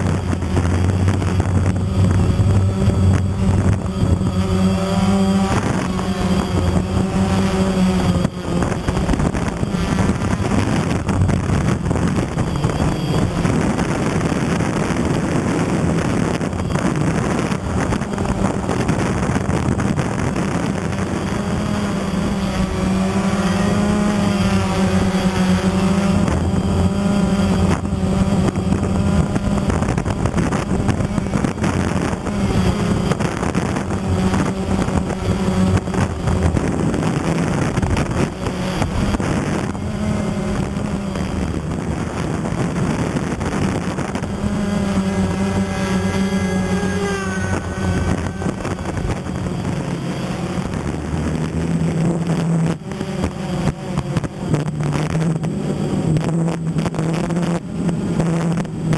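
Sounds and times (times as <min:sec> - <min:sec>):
drone propellers whirring: 0:00.0 - 0:58.9.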